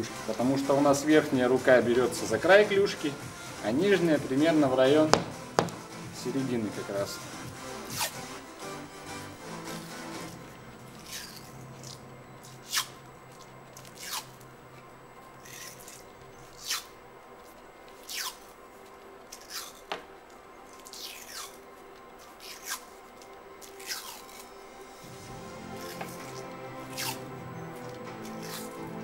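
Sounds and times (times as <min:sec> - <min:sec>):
tape ripping off roll: 0:07.9 - 0:08.2, 0:10.2 - 0:13.0, 0:13.7 - 0:14.5, 0:20.7 - 0:21.6, 0:25.7 - 0:27.3.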